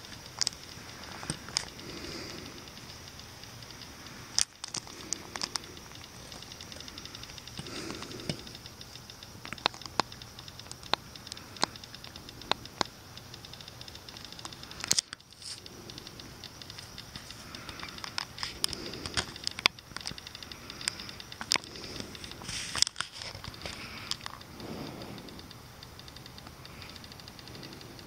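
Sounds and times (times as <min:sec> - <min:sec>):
steady high hiss: 0:00.0 - 0:28.0
camera handling clicks: 0:14.1 - 0:15.6, 0:16.7 - 0:20.2.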